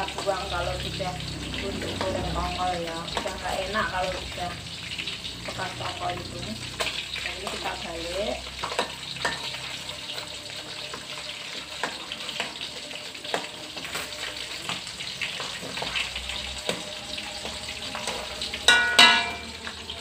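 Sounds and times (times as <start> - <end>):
fish sizzling in oil: 0.0 - 20.0
metal spatula scraping wok: 6.6 - 20.0.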